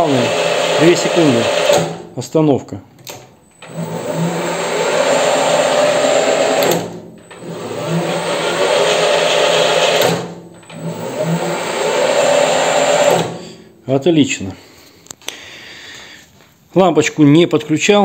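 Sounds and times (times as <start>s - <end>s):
lathe motor whine rising: 0.0s - 1.9s, 3.6s - 13.6s.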